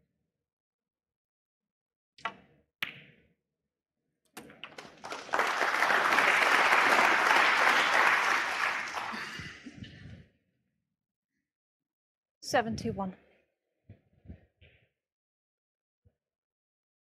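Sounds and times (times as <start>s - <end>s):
snooker balls clicking: 4.4s - 5.0s
crowd applause: 4.7s - 9.7s.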